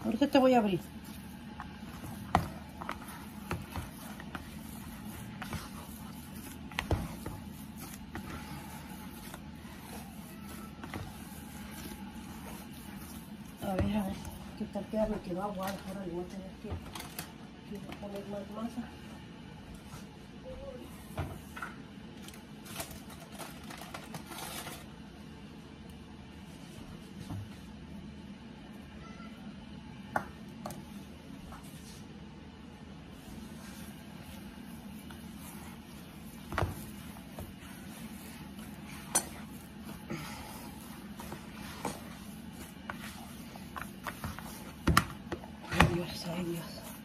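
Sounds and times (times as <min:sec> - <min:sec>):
hands squishing dough: 0:00.0 - 0:18.8, 0:30.2 - 0:47.0
rustling and light scraping: 0:00.0 - 0:19.0, 0:33.1 - 0:47.0.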